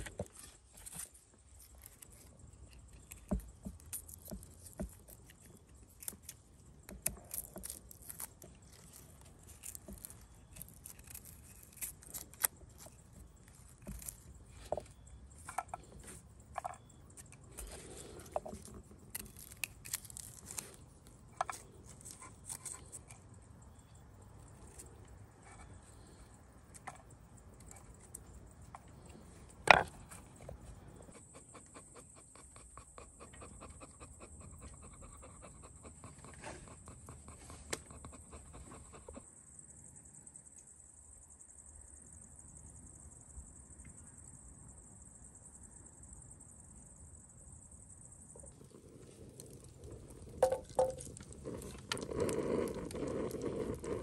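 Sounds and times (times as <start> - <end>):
faint crackling hiss: 48.3 - 54.0.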